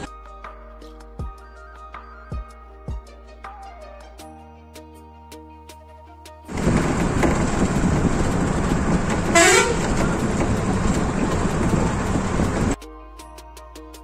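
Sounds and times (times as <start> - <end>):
vehicle road noise: 6.5 - 12.8
short horn toot: 9.3 - 10.1.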